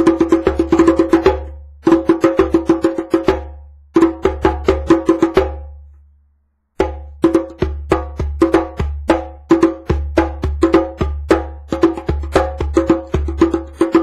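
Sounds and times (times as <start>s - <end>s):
djembe played by hand: 0.0s - 5.8s, 6.8s - 14.0s.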